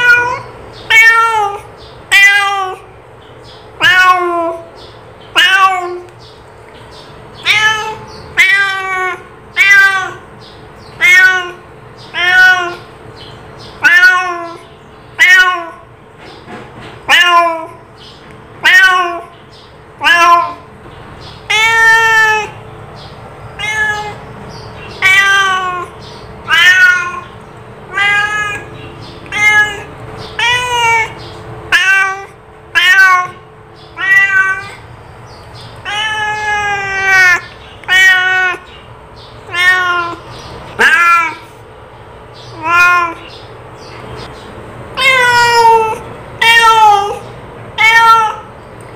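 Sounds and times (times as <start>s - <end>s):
cat meowing: 0.0s - 2.9s, 3.8s - 4.7s, 5.3s - 6.1s, 7.4s - 12.9s, 13.7s - 15.9s, 17.0s - 17.9s, 18.6s - 19.4s, 20.0s - 20.7s, 21.3s - 22.6s, 23.5s - 34.9s, 35.6s - 38.8s, 39.4s - 41.6s, 42.4s - 43.5s, 44.9s - 48.5s.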